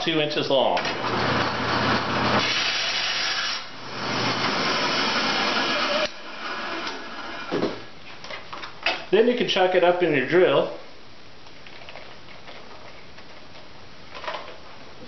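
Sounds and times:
bandsaw cutting wood: 1.0 - 7.6.

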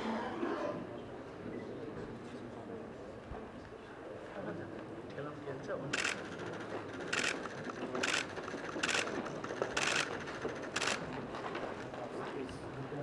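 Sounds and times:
camera shutter clicks: 6.0 - 6.3, 7.1 - 11.1.

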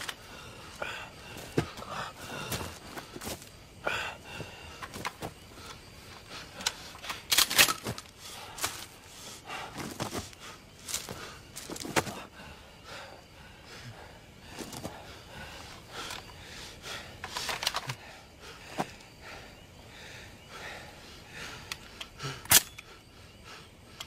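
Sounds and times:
sharp clicks: 21.6 - 23.0.

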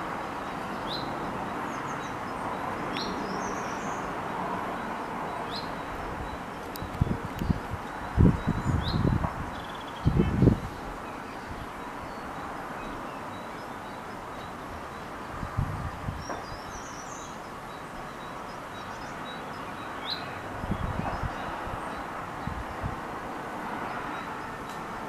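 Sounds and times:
steady rushing background noise: 0.0 - 25.0
bird chirps: 4.8 - 15.2.

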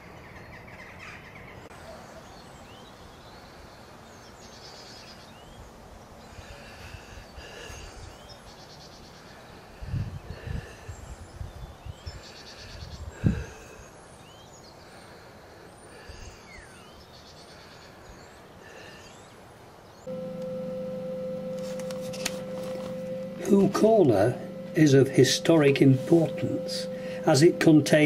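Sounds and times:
wind gusting on microphone: 9.8 - 12.2
background music held note: 20.1 - 28.0.

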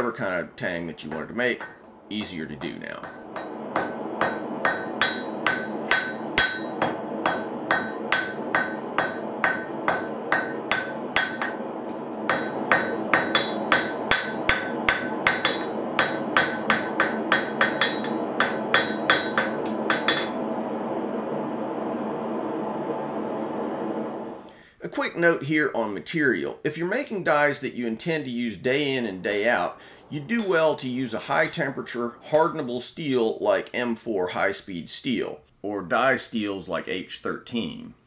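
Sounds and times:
steady background hum: 0.0 - 36.1
hammer blows on anvil: 1.0 - 20.4.

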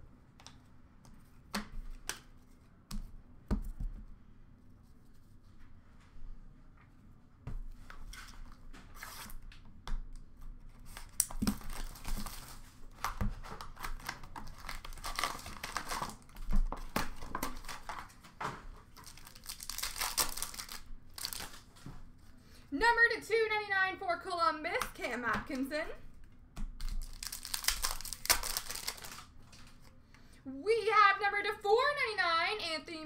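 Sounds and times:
card pack wrappers tearing: 10.9 - 18.1, 19.0 - 21.7, 26.8 - 29.9.

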